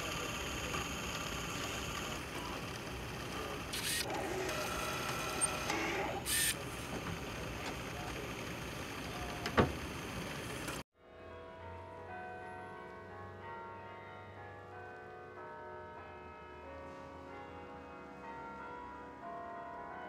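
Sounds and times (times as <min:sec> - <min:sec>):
printer motors whirring: 0:00.0 - 0:10.8
brief hissy bursts: 0:06.3 - 0:06.6.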